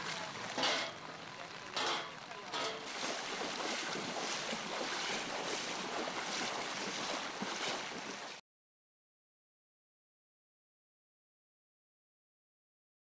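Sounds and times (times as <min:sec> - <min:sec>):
person wading through water: 0:02.6 - 0:08.4.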